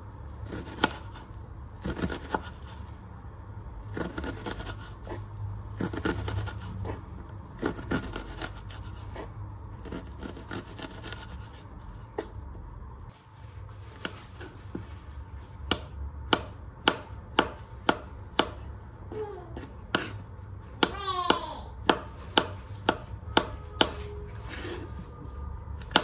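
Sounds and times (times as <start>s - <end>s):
knife chopping on cutting board: 0.4s - 2.8s, 3.9s - 5.2s, 5.8s - 7.0s, 7.6s - 12.4s, 15.6s - 18.7s, 19.6s - 24.0s.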